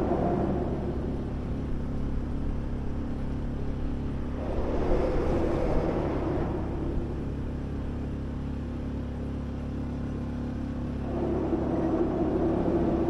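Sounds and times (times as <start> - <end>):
engine drone: 0.0 - 13.0
low hum: 0.0 - 13.0.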